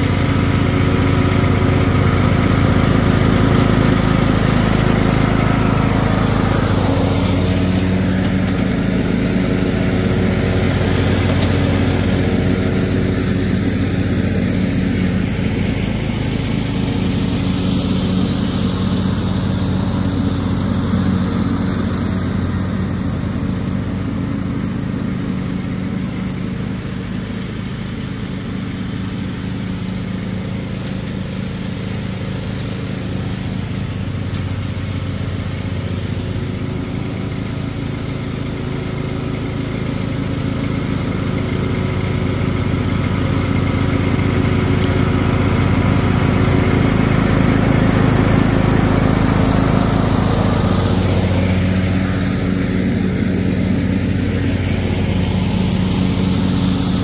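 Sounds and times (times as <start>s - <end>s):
lawn mower engine running: 0.0s - 57.0s.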